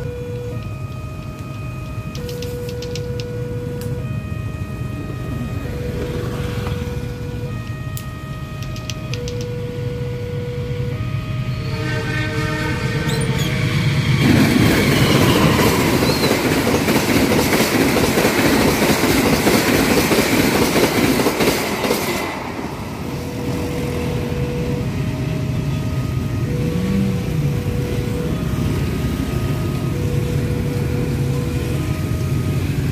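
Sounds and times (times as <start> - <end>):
train horn: 11.0 - 16.5.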